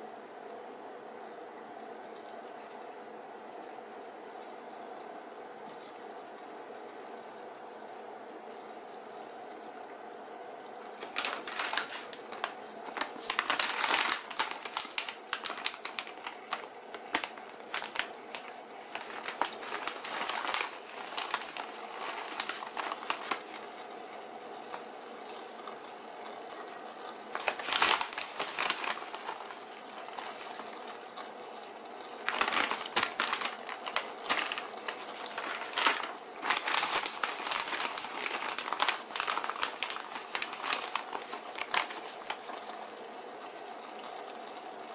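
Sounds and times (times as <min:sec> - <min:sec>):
faint steady hum: 0:00.0 - 0:44.9
plastic bag crinkling: 0:10.8 - 0:42.8.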